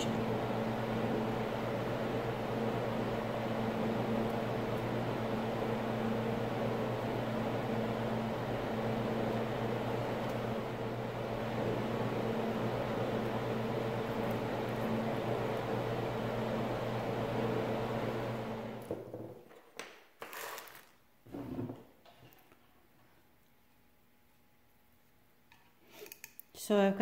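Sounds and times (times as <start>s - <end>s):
steady mechanical hum: 0.0s - 19.5s.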